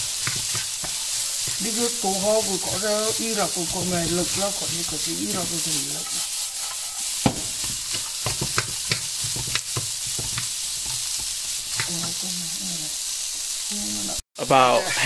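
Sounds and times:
wooden spatula scraping a pan: 0.0s - 11.9s
stuffing sizzling in a frying pan: 0.0s - 15.0s.

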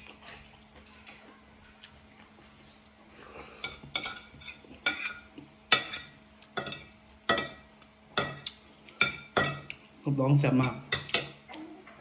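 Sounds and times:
cutlery scraping a ceramic plate: 3.6s - 7.6s.

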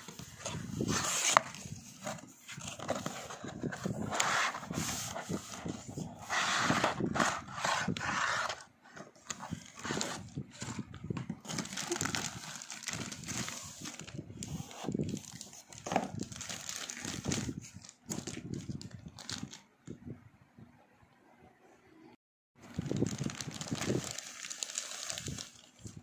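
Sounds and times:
plastic wrapping crinkling: 9.0s - 19.6s, 22.6s - 26.0s.

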